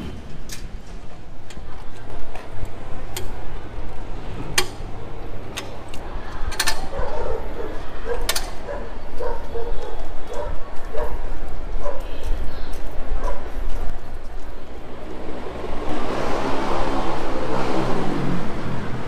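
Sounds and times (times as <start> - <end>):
wheel clamp metal clicks: 0.3 - 3.4, 4.5 - 4.9, 5.5 - 7.1, 8.1 - 8.6
dog barking: 6.9 - 11.2, 11.8 - 12.1, 13.2 - 13.5.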